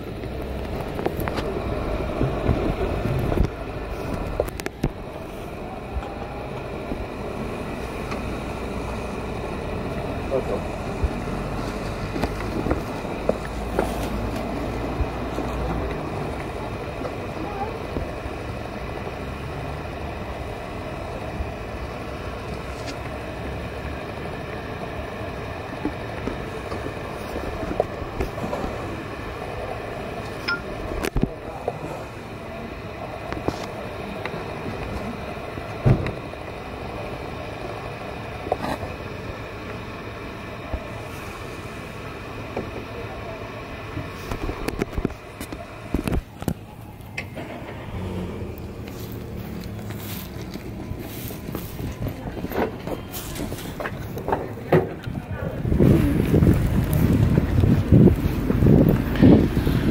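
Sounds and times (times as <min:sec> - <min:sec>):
wind rumbling on microphone: 0:00.0 - 0:09.9, 0:53.3 - 0:59.9
low outdoor background: 0:00.0 - 0:59.9
low street rumble: 0:00.0 - 0:59.9.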